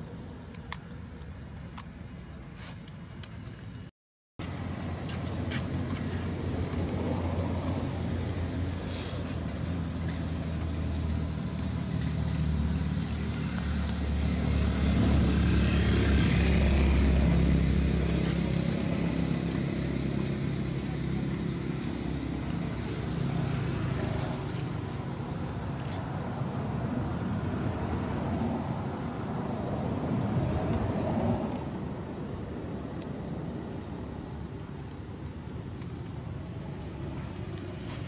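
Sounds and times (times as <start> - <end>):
motor engine droning: 4.5 - 25.0.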